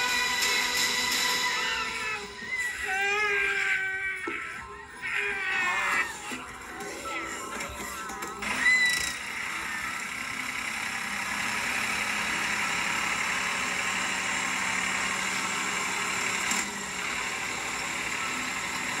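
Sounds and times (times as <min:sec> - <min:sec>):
tractor engine running: 0:06.1 - 0:19.0.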